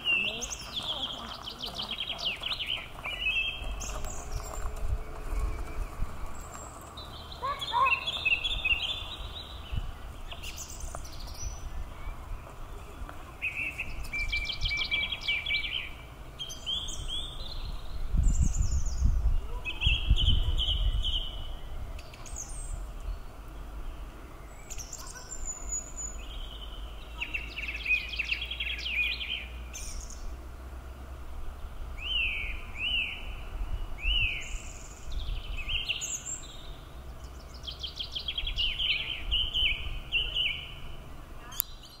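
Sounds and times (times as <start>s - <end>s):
low outdoor hum: 0.0s - 42.0s
songbirds singing: 0.0s - 42.0s.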